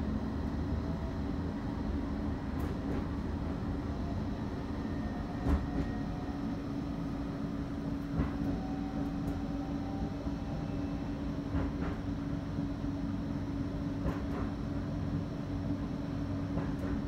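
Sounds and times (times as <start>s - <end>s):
tram cabin rumble: 0.0s - 17.0s.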